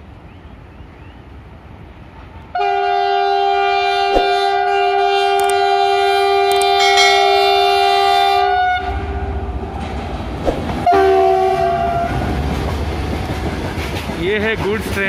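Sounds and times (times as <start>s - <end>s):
low rumble of train: 0.0s - 15.0s
locomotive air horn blast: 2.6s - 9.4s, 10.8s - 12.3s.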